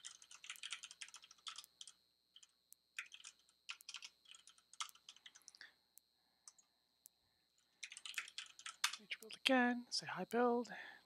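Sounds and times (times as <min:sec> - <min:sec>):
computer keyboard typing: 0:00.0 - 0:05.6, 0:06.4 - 0:06.7, 0:07.8 - 0:09.6.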